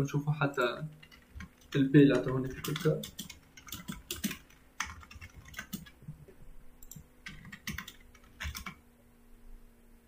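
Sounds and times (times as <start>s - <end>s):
computer keyboard typing: 0.9s - 6.1s, 6.8s - 8.8s.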